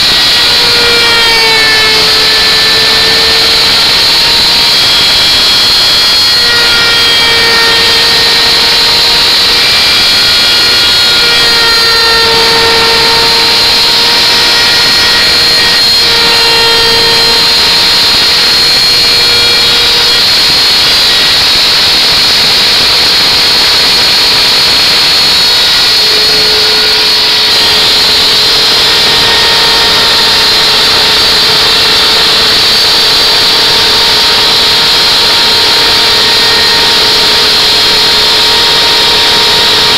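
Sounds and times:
router cutting wood: 0:00.0 - 0:39.9.

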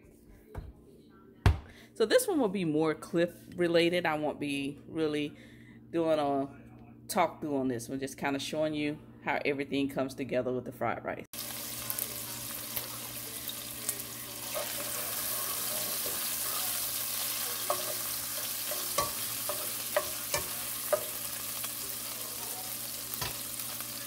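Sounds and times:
bacon sizzling in oil: 0:11.4 - 0:24.0
utensil clicking against pan: 0:18.7 - 0:21.2.

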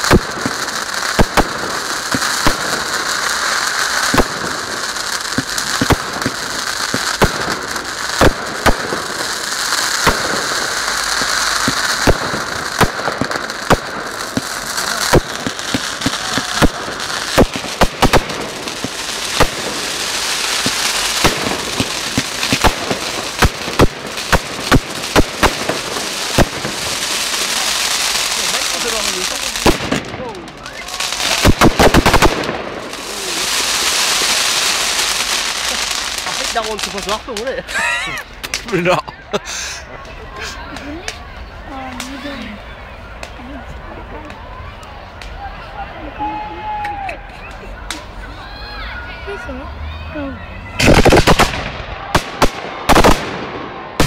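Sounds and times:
fireworks bangs: 0:00.0 - 0:38.9, 0:50.4 - 0:54.0
hiss of burning fireworks: 0:00.0 - 0:54.0.

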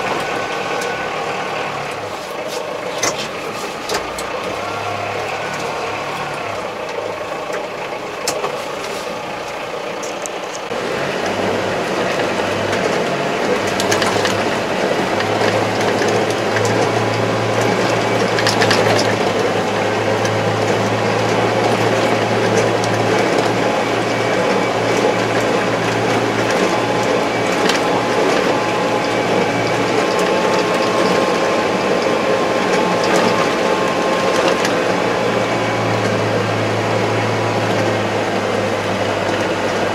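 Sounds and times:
tractor diesel engine running: 0:00.0 - 0:39.9
mechanical rattling: 0:11.9 - 0:36.9.

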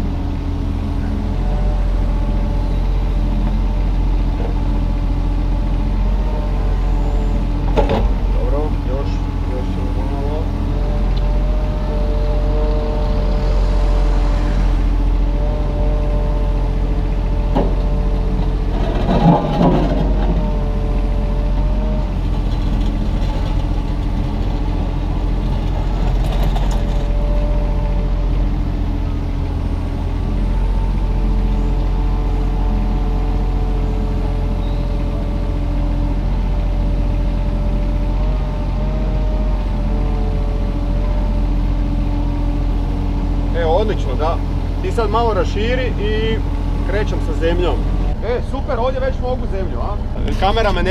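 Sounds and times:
excavator diesel engine running: 0:00.0 - 0:50.9
short clatter: 0:18.7 - 0:20.4.

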